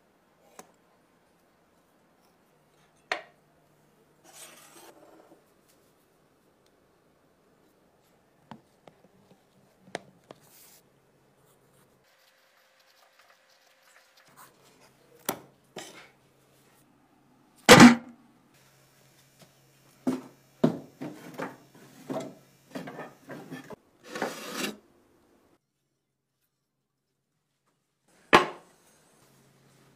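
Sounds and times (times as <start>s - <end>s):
knocks and scrapes: 4.2s - 5.4s.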